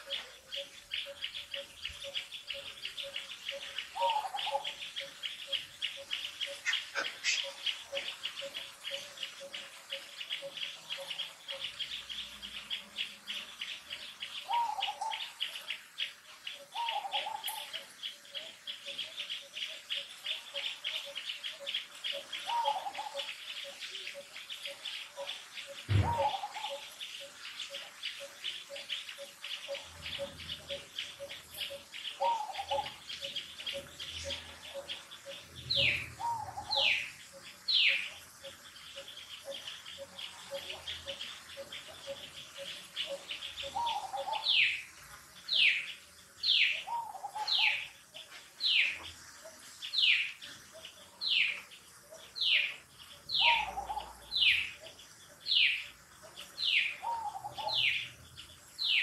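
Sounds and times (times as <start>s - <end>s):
birds chirping and calling: 0.0s - 59.0s
falling whistled bird calls: 25.7s - 26.9s
low thump: 25.9s - 26.3s.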